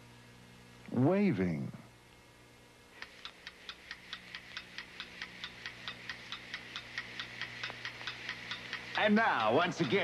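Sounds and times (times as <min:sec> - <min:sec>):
faint steady hum: 0:00.0 - 0:10.0
clock ticking: 0:03.0 - 0:10.0.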